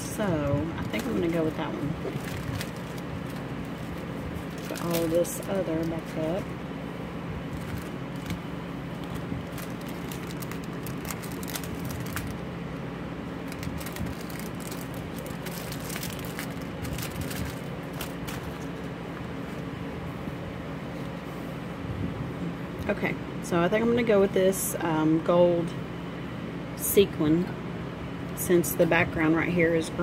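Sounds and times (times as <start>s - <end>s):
steady low hum: 0.0s - 30.0s
plastic packets crinkling: 0.8s - 6.4s, 7.5s - 12.5s, 13.4s - 18.9s.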